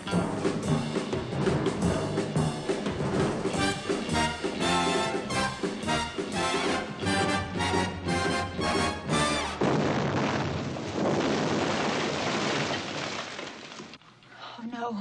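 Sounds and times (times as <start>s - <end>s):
brassy orchestral chords: 0.1s - 9.6s
explosion blast: 8.6s - 13.7s
fire and falling debris: 8.6s - 14.2s.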